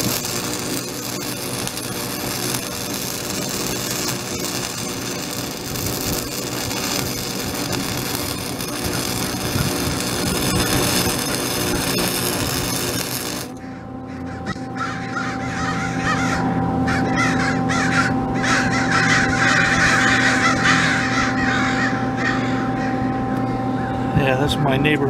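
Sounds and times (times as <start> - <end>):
welder arc crackling: 0.0 - 13.6
steady hum: 0.0 - 25.0
crows cawing: 13.6 - 23.9.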